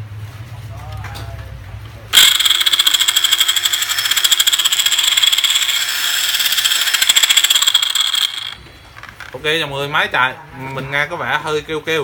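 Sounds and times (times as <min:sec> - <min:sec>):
circular saw whining: 0:02.2 - 0:08.6.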